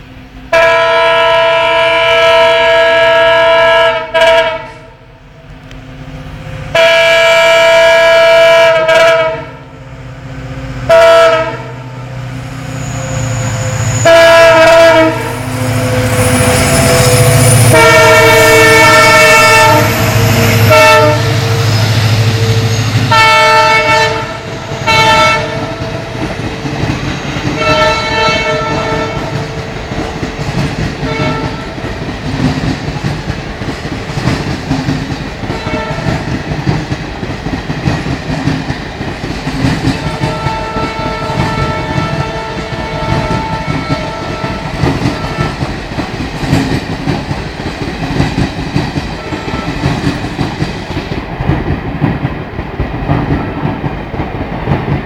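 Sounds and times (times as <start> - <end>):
locomotive air horn blasts: 0.5 - 5.1, 6.6 - 25.9, 27.6 - 29.5, 31.0 - 31.8, 35.5 - 36.2, 40.0 - 45.7, 49.2 - 49.9
train wheels clickety-clack: 13.0 - 55.0.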